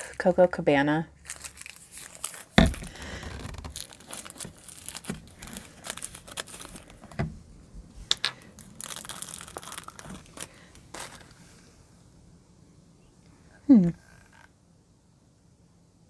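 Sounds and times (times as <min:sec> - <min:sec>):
plastic wrapping crinkling and tearing: 0:01.1 - 0:07.2, 0:08.1 - 0:11.4.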